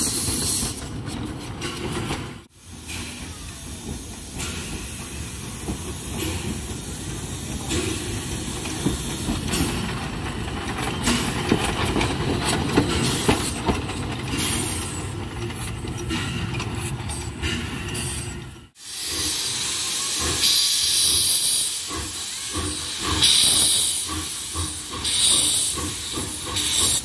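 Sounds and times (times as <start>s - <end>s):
wheels clacking over rail joints: 3.9s - 18.5s.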